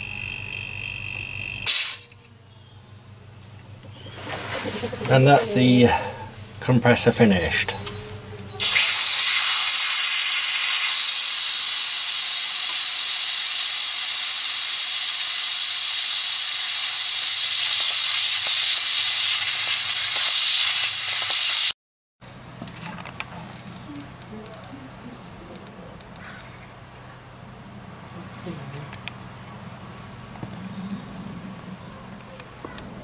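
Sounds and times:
compressed air hissing from valve: 0:01.7 - 0:02.2, 0:08.6 - 0:21.7.

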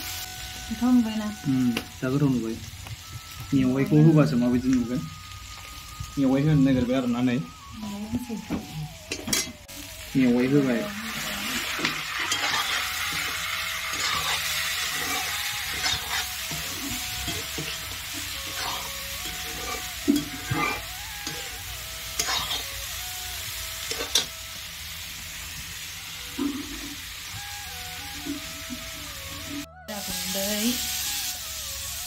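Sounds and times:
food sizzling in a wok: 0:00.0 - 0:32.0
metal spatula scraping pan: 0:11.8 - 0:21.5, 0:22.1 - 0:22.7, 0:23.9 - 0:24.4.

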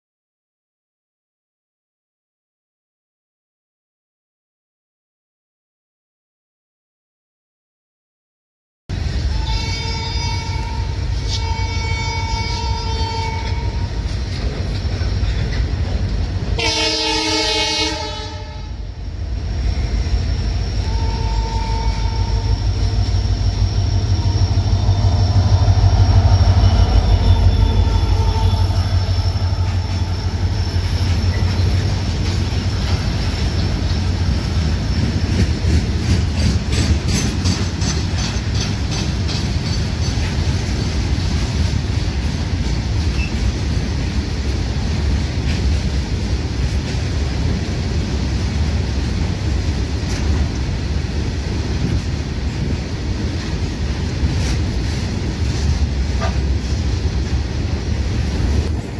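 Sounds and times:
train horn blast: 0:09.3 - 0:14.0, 0:16.6 - 0:18.9, 0:20.8 - 0:23.0, 0:26.0 - 0:30.6
locomotive engine rumble: 0:18.8 - 0:58.9.

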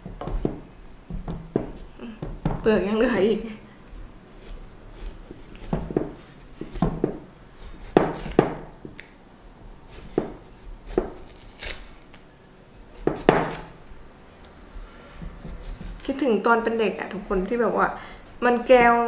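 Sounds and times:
knife slicing peel: 0:03.9 - 0:09.0, 0:09.9 - 0:12.2, 0:12.9 - 0:16.1.

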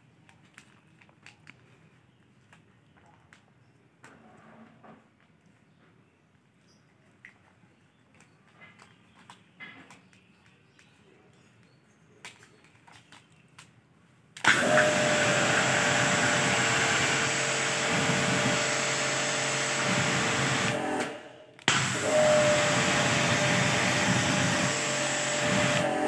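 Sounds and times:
pressure washer motor and pump: 0:14.4 - 0:26.0
water jet spraying: 0:14.4 - 0:26.0.

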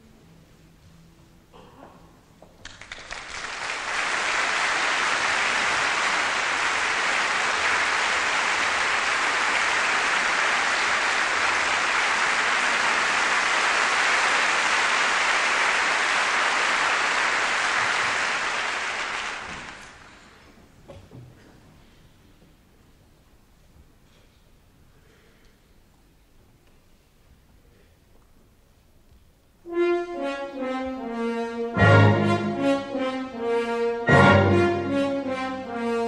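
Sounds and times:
audience applauding: 0:02.6 - 0:20.4.

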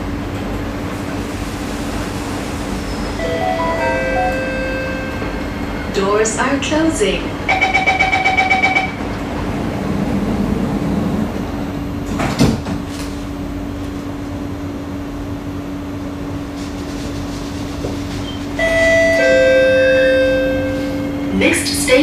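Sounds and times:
train interior hum: 0:00.0 - 0:22.0
sliding doors thudding shut: 0:12.0 - 0:13.2.

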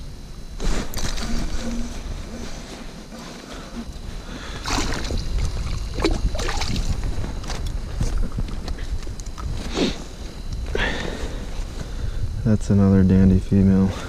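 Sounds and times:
wind rumbling on microphone: 0:00.0 - 0:14.0
water splashing and sloshing: 0:04.5 - 0:08.2.

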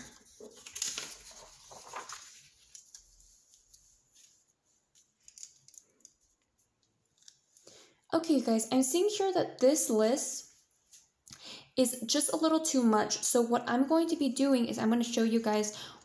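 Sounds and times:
paper sheets rustling: 0:00.0 - 0:07.6.

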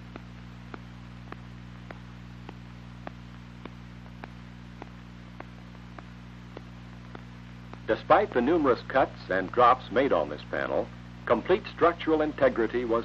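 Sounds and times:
sharp clicks: 0:00.0 - 0:09.6
electrical hum: 0:00.0 - 0:13.0
faint hiss: 0:00.0 - 0:13.0.

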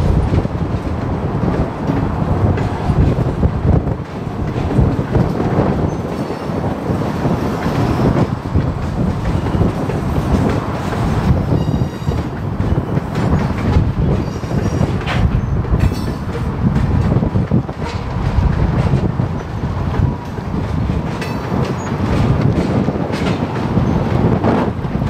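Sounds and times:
train wheels rumbling on rail: 0:00.0 - 0:25.0
wheels clattering over rail joints: 0:00.0 - 0:25.0
high-pitched wheel squeal: 0:11.4 - 0:12.3.

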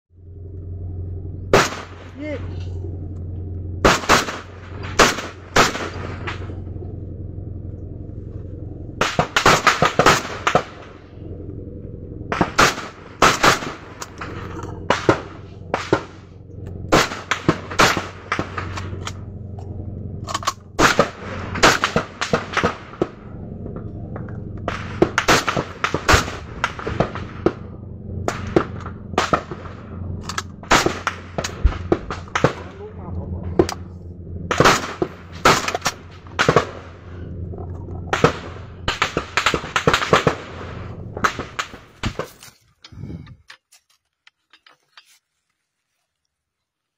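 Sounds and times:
low hum: 0:00.1 - 0:46.9
assault rifle fire: 0:03.8 - 0:06.5, 0:24.7 - 0:27.6.

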